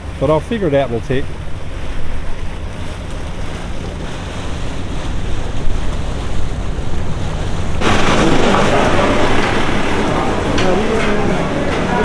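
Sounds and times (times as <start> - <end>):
harbour water washing: 0.0 - 12.0
wind on microphone: 0.8 - 12.0
indoor market hubbub: 7.8 - 12.0.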